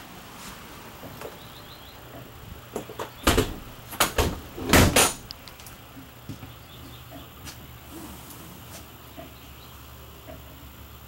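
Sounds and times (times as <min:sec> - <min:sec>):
loud knocks and thumps: 0:02.7 - 0:05.2.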